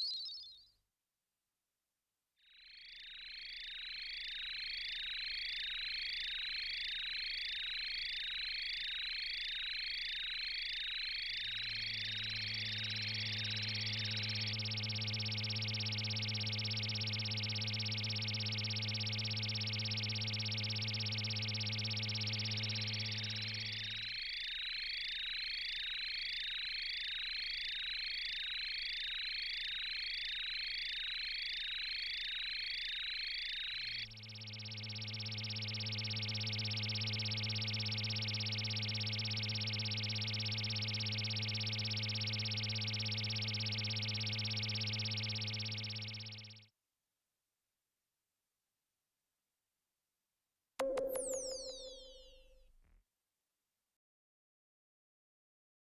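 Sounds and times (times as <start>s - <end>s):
repeating falling electronic chirp: 0.0s - 0.6s, 50.8s - 52.6s.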